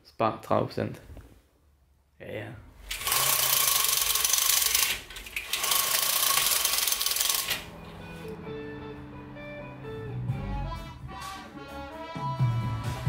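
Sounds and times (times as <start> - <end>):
harsh rattling noise: 2.8 - 7.7
guitar music: 7.6 - 13.0.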